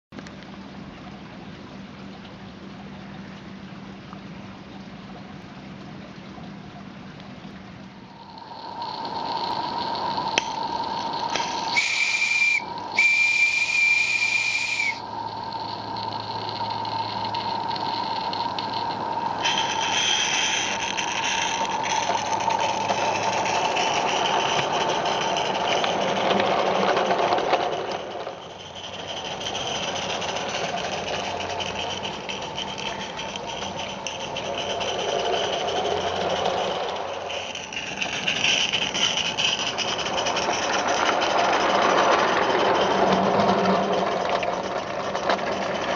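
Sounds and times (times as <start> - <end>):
steam hissing: 8.2 - 27.3
steam whistle blasts: 11.4 - 15.1.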